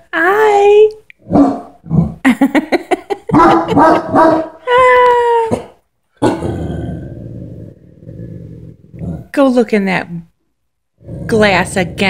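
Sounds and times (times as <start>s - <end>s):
puppy barking: 1.3s - 1.7s, 3.3s - 4.6s
long howling bark: 3.3s - 4.6s.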